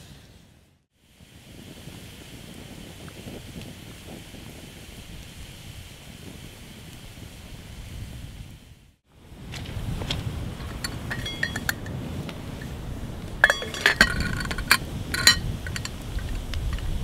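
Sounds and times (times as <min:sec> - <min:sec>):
metal pot lid clinking: 0:10.7 - 0:12.0, 0:13.4 - 0:15.9.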